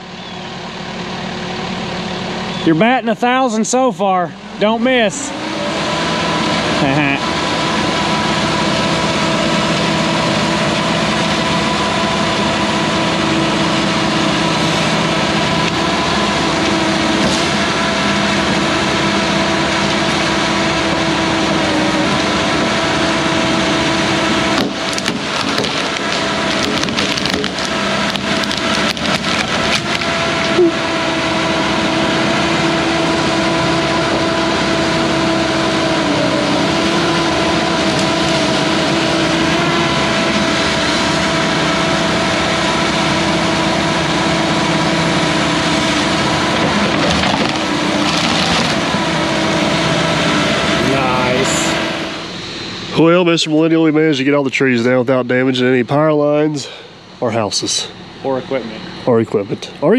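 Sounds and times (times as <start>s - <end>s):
excavator engine running: 0.0s - 59.9s
tree cracking and splintering: 24.4s - 30.6s, 45.7s - 49.1s.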